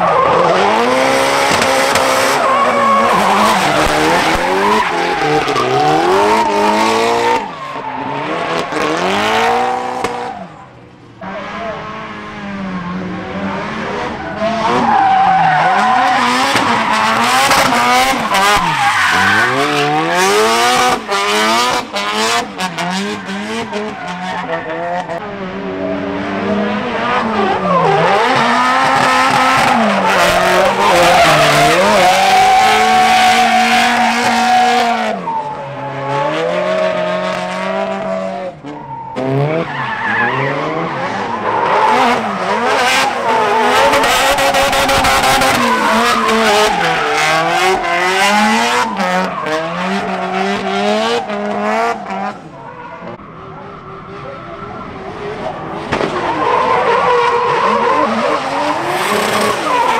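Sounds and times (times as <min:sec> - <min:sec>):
car engines revving hard: 0:00.0 - 0:59.9
tyre squeal: 0:14.2 - 0:20.0.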